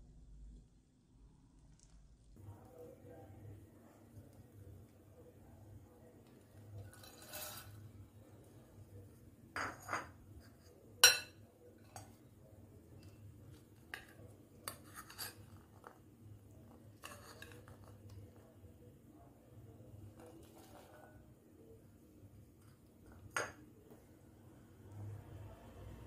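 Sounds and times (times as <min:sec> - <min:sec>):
metal spoon clinking on bowls: 0:06.8 - 0:07.8, 0:09.6 - 0:10.2, 0:11.0 - 0:12.2.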